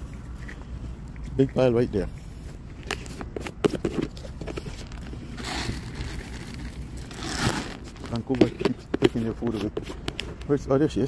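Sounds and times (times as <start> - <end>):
footsteps on pavement: 6.5 - 10.5.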